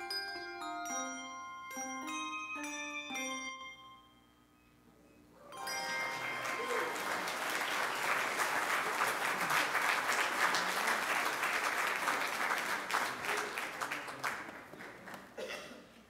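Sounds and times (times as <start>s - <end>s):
congregation applauding: 5.6s - 15.4s.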